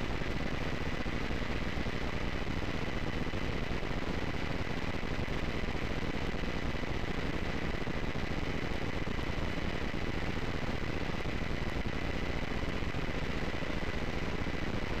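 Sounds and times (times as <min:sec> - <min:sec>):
faint thin whine: 0:00.0 - 0:15.0
recording line hiss and hum: 0:00.0 - 0:15.0.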